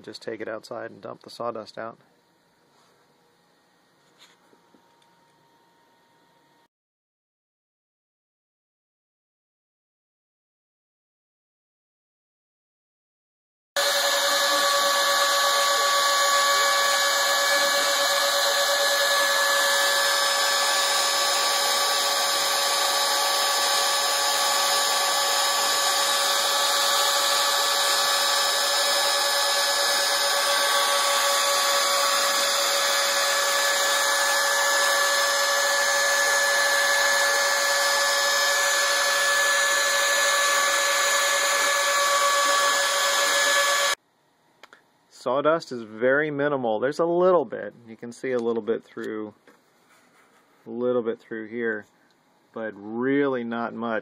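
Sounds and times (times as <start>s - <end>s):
router cutting wood: 13.8s - 44.0s
stepper motors driving: 13.8s - 44.0s
vacuum sucking dust: 13.8s - 44.0s.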